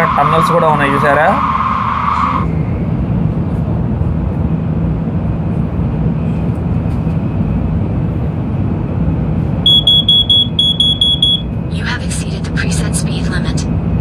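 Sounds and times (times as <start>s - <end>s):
train rumble inside passenger car: 2.2s - 14.0s
short high electronic beeps: 9.7s - 11.5s.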